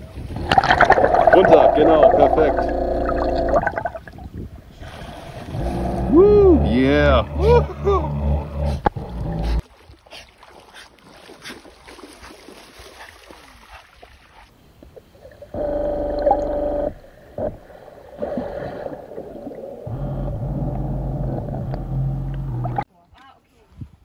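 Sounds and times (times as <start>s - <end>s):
underwater thruster motors humming: 0.4s - 4.0s, 5.5s - 9.6s, 15.6s - 18.4s, 19.8s - 22.9s.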